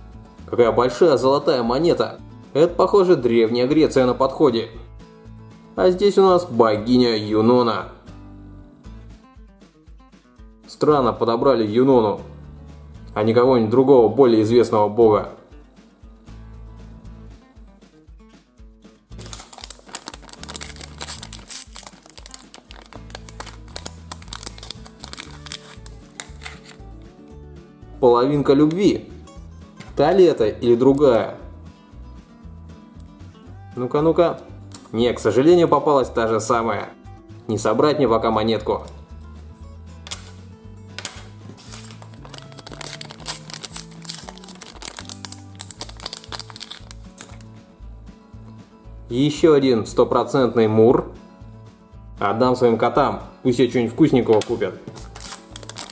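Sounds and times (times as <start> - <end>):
background music: 0.0 - 55.9
plastic packet crinkling: 19.2 - 26.9, 41.0 - 47.5, 54.9 - 55.9.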